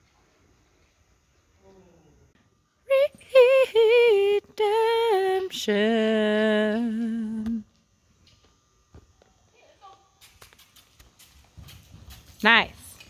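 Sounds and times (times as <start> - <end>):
woman singing wordless tune: 2.9 - 7.7.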